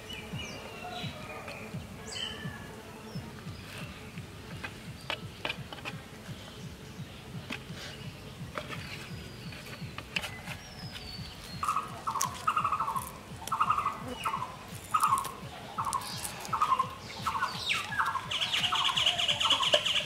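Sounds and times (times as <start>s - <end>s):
bird calling in buzzy notes: 8.0s - 20.0s.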